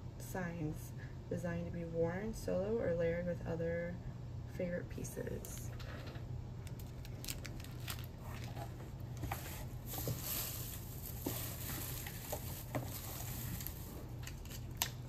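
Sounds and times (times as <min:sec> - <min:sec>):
steady low hum: 0:00.0 - 0:15.0
plastic bag rustling: 0:06.8 - 0:15.0.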